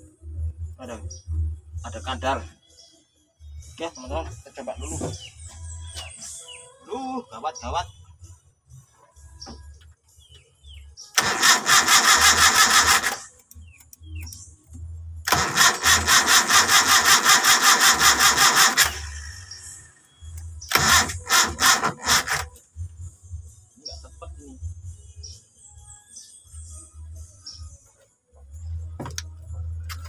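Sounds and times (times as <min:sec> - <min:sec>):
starter motor cranking engine: 0:11.2 - 0:13.3, 0:15.2 - 0:19.8, 0:20.7 - 0:22.5.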